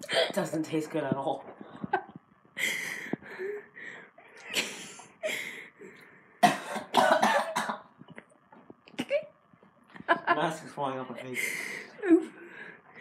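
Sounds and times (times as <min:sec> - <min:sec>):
person coughing: 0:06.4 - 0:07.9.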